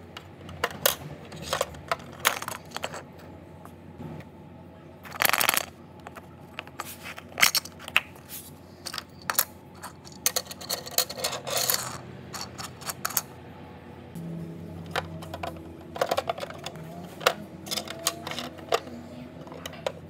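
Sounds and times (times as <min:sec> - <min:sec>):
plastic toys clicking and knocking: 0:00.1 - 0:03.2, 0:05.0 - 0:08.2, 0:08.8 - 0:13.3, 0:14.9 - 0:20.0.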